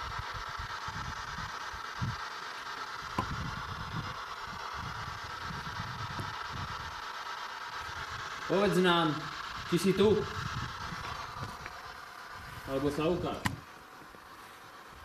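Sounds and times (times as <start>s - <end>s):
steady hiss: 0.0s - 15.0s
handheld camera bumps and rustling: 3.1s - 4.0s, 12.5s - 14.3s.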